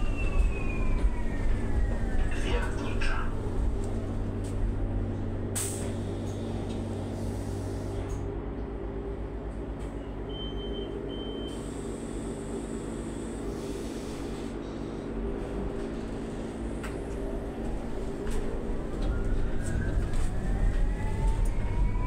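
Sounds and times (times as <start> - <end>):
click: 8.1 - 8.7.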